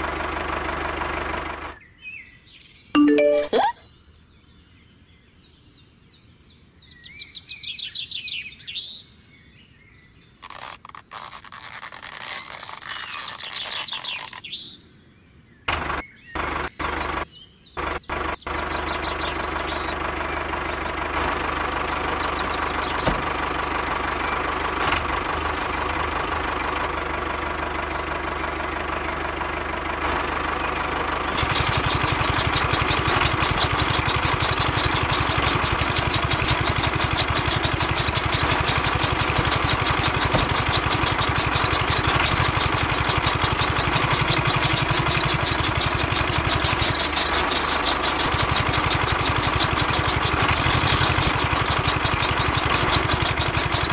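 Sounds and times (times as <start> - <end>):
small motor running: 21.3 - 27.9, 31.3 - 53.9
blades chopping grass: 25.0 - 26.2, 31.4 - 53.9.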